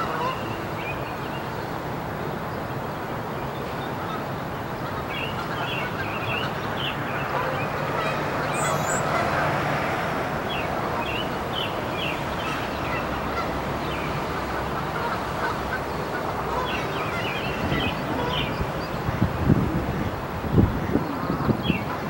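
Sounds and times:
outdoor background noise: 0.0 - 22.0
birds chirping: 0.1 - 22.0.

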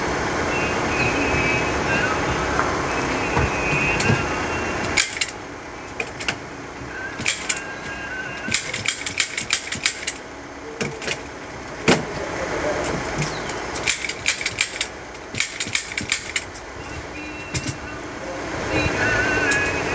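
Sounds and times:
rumbling noise: 0.0 - 19.9
staple gun firing: 7.2 - 7.6, 8.5 - 10.2, 13.8 - 16.5.

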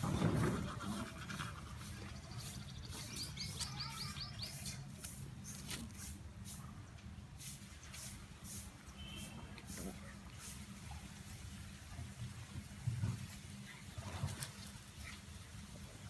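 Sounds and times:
bird trilling chirps: 2.2 - 4.9.

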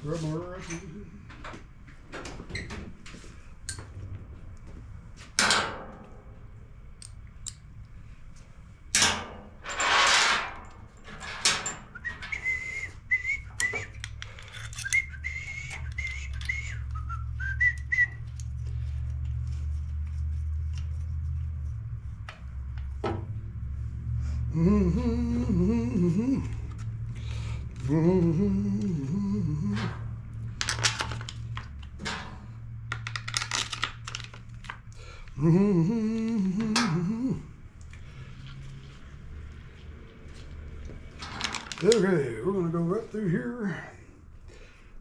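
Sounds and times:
man whistling a tune: 11.9 - 14.0, 14.8 - 18.2
man humming: 24.4 - 26.7, 27.8 - 30.1, 35.3 - 37.6.

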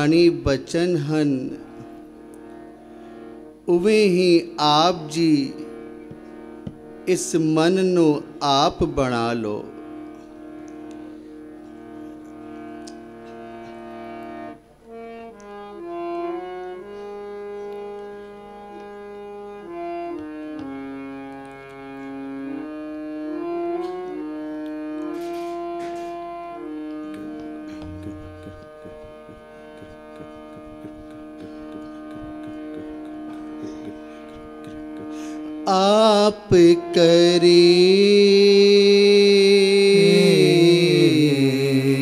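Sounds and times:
harmonium melody over drone: 0.0 - 42.0
soft taps: 27.7 - 35.1.

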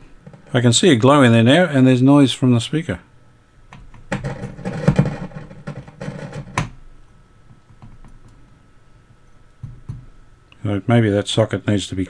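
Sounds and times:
radio speaker crackling and scratching: 0.2 - 1.6, 4.0 - 6.6.

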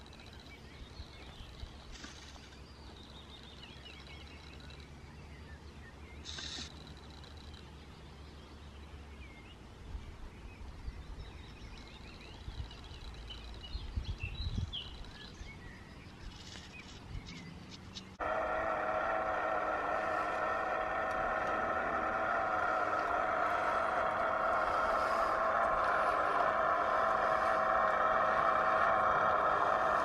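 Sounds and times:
birds chirping: 0.0 - 30.0
model locomotive whining hum: 18.2 - 30.0.

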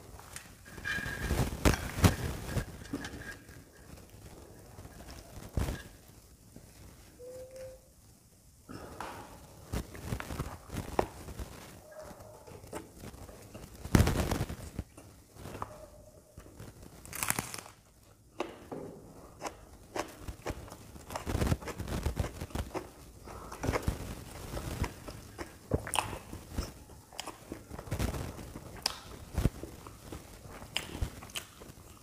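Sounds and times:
crunchy chewing and biting: 16.4 - 18.6, 19.2 - 32.0
wet mouth sounds: 25.0 - 27.6.

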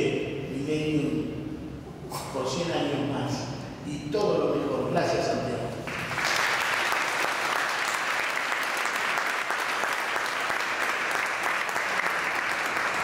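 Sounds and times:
audience applauding: 5.9 - 13.0.

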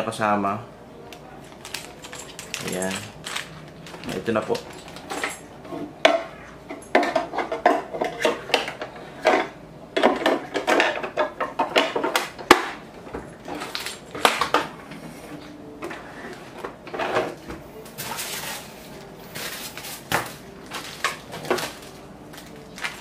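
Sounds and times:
plastic bag crinkling and rattling: 1.5 - 5.4, 19.3 - 23.0.

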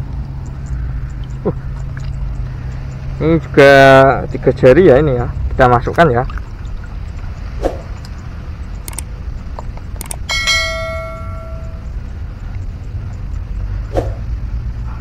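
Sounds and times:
steady low rumble: 5.3 - 15.0
sharp clicks: 8.8 - 10.3
bright bell ding: 10.2 - 11.9.

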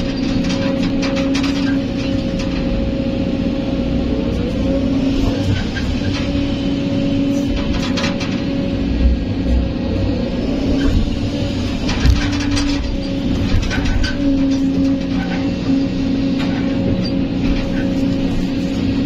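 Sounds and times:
clanks and rattles: 0.0 - 3.0, 7.3 - 9.8, 10.8 - 19.0
excavator engine and hydraulics droning: 0.0 - 19.0.

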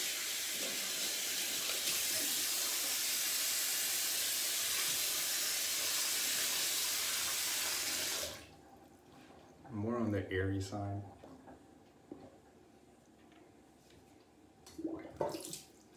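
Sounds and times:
tap water running: 0.0 - 9.6, 14.6 - 15.9.

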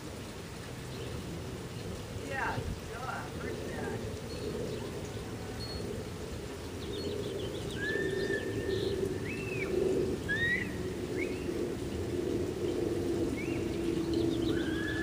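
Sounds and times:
low rumble and hiss: 0.0 - 15.0.

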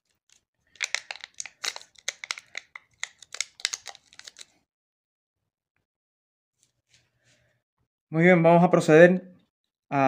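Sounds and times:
foil pouch crinkling: 0.2 - 4.6.

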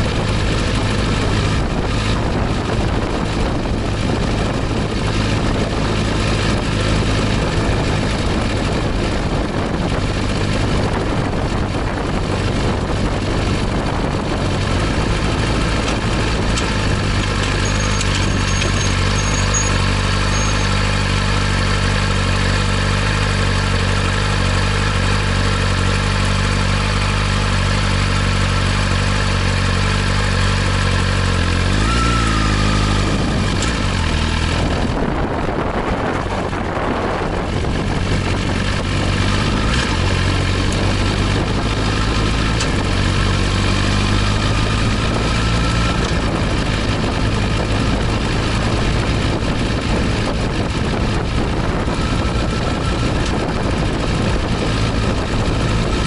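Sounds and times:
motorcycle engine idling: 0.0 - 31.6
wind and road noise: 0.0 - 56.0.

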